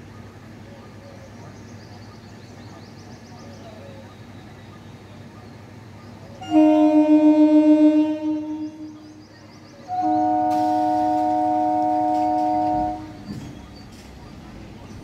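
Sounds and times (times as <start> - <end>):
train horn blasts: 6.4 - 9.2, 9.9 - 13.5.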